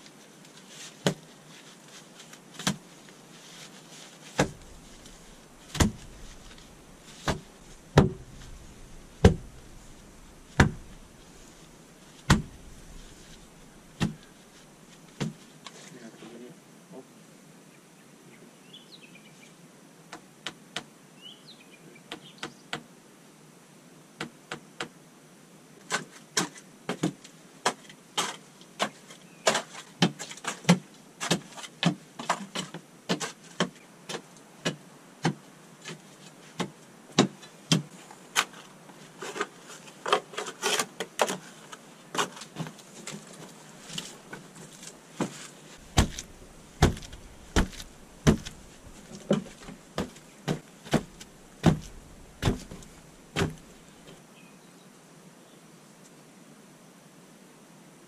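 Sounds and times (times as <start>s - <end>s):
poles thudding tamping soil: 4.2s - 15.4s, 42.1s - 54.2s
boots stamping earth: 4.2s - 15.5s, 42.2s - 54.1s.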